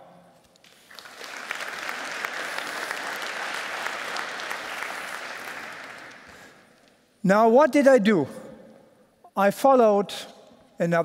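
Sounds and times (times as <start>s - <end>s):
audience applauding: 0.6s - 6.6s.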